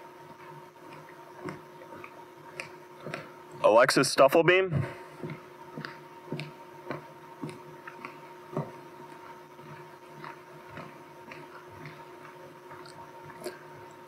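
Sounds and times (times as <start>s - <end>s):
footsteps on wooden floor: 4.7s - 12.8s.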